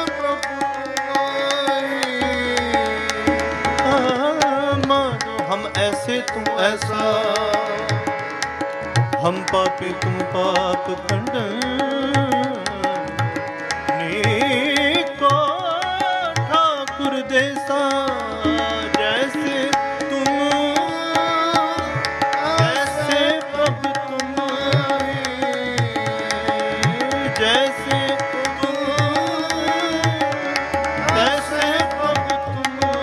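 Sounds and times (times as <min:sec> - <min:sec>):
person singing: 0:00.0 - 0:08.1, 0:14.0 - 0:33.0
harmonium playing held tones: 0:00.0 - 0:33.0
tabla rhythm: 0:00.0 - 0:33.0.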